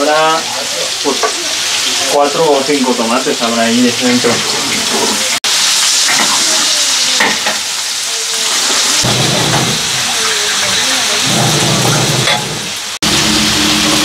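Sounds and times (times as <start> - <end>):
meat sizzling in a pan: 0.0 - 14.0
tap water running into pot: 6.0 - 12.8.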